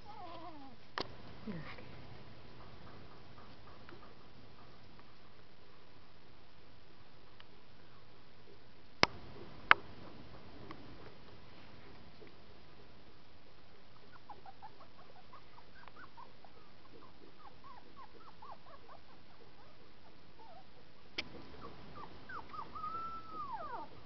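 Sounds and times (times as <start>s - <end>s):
puppy whining: 0.0s - 0.8s, 13.9s - 24.0s
puppies squeaking: 14.0s - 20.8s, 21.6s - 24.0s.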